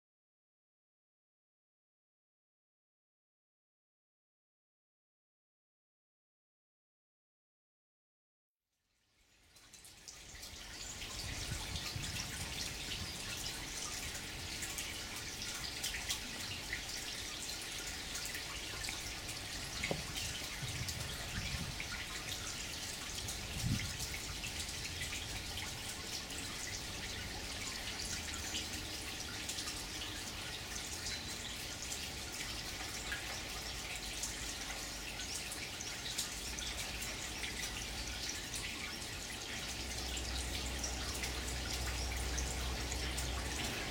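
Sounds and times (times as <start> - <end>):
fountain water trickling on stone: 8.8 - 43.9
dull thump: 19.8 - 20.2.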